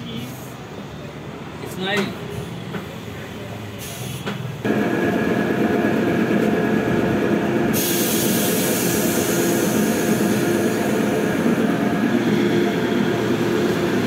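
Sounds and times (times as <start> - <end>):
air compressor humming: 4.6 - 14.0
high hiss: 7.7 - 11.3.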